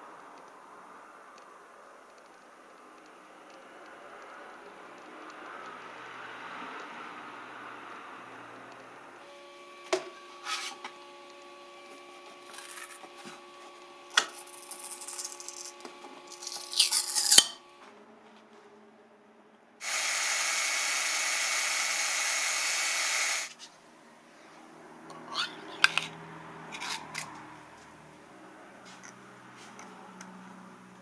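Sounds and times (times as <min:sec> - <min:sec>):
cordless drill drilling into metal: 0:19.8 - 0:23.5
printer fans humming: 0:19.8 - 0:23.5.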